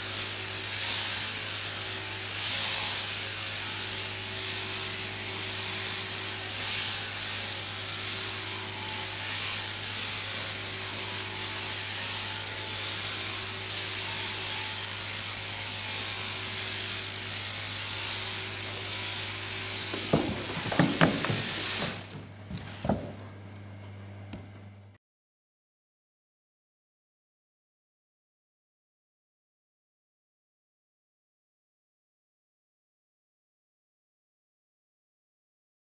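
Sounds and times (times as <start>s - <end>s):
electric shears hissing: 0.0s - 23.1s
loud knocks: 19.8s - 23.2s.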